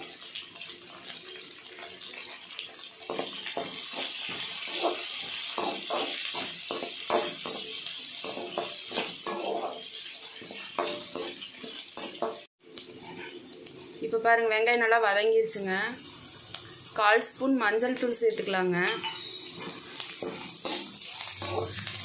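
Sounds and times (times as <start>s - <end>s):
onions sizzling in hot oil: 0.0s - 22.0s
metal ladle scraping a pan: 8.2s - 12.4s, 18.9s - 22.0s.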